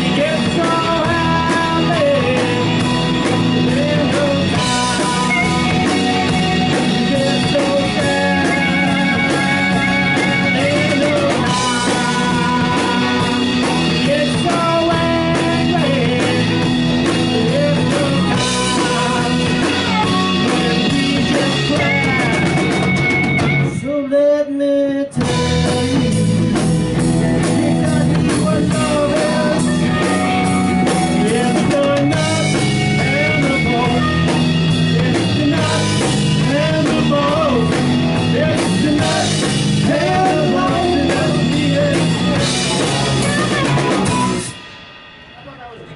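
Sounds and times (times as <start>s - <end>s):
electric guitar bending lead notes: 0.0s - 24.1s, 25.1s - 45.9s
live rock band playing: 0.0s - 45.9s
harmonica: 4.6s - 12.5s, 18.5s - 23.9s.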